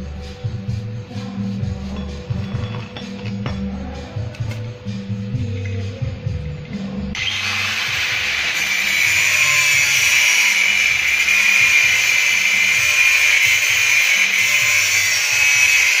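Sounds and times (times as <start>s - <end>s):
background music: 0.0s - 16.0s
angle grinder cutting steel: 7.2s - 16.0s.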